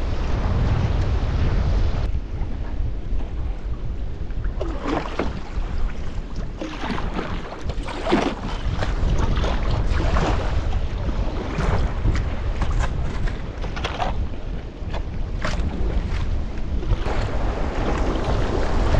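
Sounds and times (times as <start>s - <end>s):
wind rumble on microphone: 0.0s - 18.9s
water splashing and gurgling: 0.2s - 18.9s
kayak paddle dipping into water: 4.4s - 18.9s.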